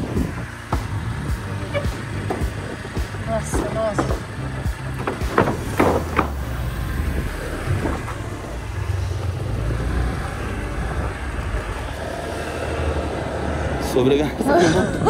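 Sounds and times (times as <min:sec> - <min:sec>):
wind noise on microphone: 0:00.0 - 0:00.5
small motorcycle engine running: 0:00.0 - 0:05.1
wheels knocking on wooden planks: 0:00.0 - 0:07.0.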